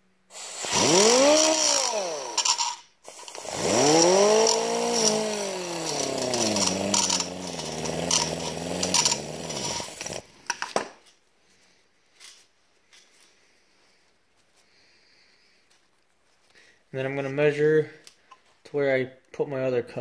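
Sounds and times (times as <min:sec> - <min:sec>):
angle grinder grinding metal: 0:00.3 - 0:10.6.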